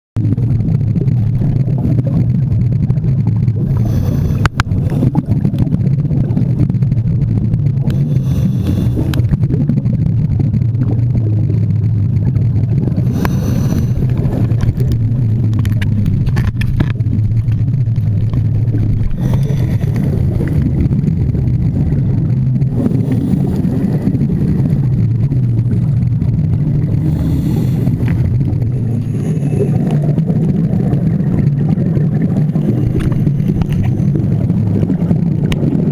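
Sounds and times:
regulator exhaust bubbles: 0.2s - 35.9s
steady low underwater rumble: 0.2s - 35.9s.

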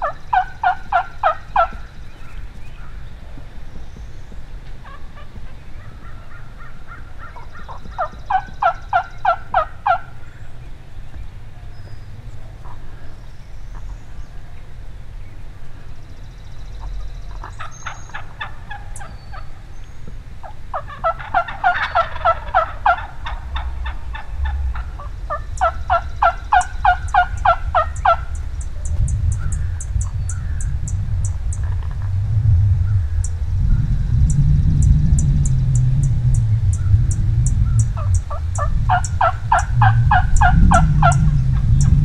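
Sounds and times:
wild turkeys yelping: 0.0s - 3.0s, 4.8s - 10.4s, 16.8s - 19.6s, 20.4s - 30.6s, 37.6s - 42.0s.

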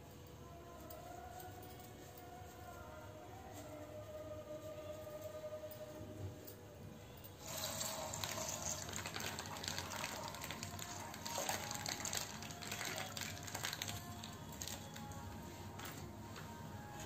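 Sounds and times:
milk splashing into a pan: 8.1s - 14.0s.

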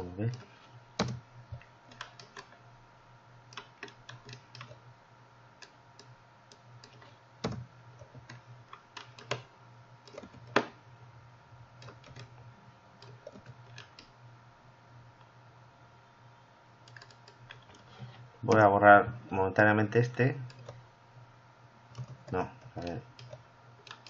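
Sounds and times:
low steady hum: 0.0s - 24.0s
keyboard and mouse clicks: 0.3s - 1.2s, 1.9s - 2.6s, 3.5s - 4.8s, 5.6s - 10.8s, 11.8s - 12.3s, 13.0s - 14.1s, 16.8s - 17.9s, 18.5s - 18.7s, 20.1s - 20.8s, 21.9s - 24.0s.

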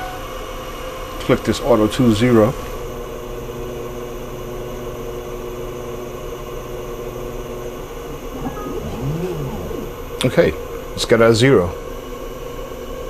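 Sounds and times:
mill motor humming and whining: 7.0s - 10.6s.

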